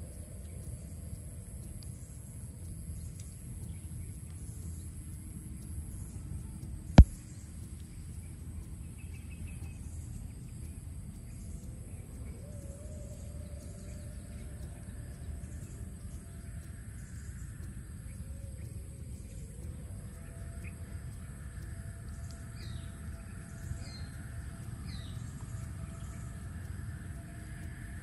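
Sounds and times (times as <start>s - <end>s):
faint bird chirps: 0.0s - 28.0s
insects buzzing: 0.0s - 28.0s
low steady rumble: 0.0s - 28.0s
loud sharp click: 7.0s - 7.3s.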